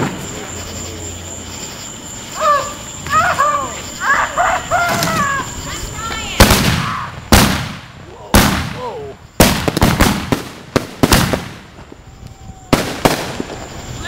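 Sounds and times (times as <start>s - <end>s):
firework cracks: 0.0s - 0.6s, 4.9s - 14.0s
firework booms with echo: 6.2s - 14.0s.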